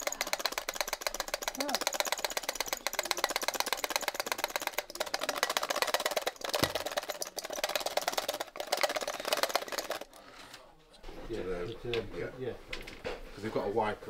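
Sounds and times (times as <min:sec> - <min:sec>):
static grass applicator crackling: 0:00.0 - 0:10.1.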